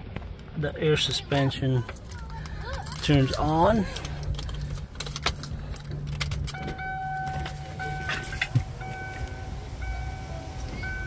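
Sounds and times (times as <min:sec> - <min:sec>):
keys jingling in ignition: 0:01.8 - 0:10.1
car warning chime beeping: 0:06.4 - 0:11.0.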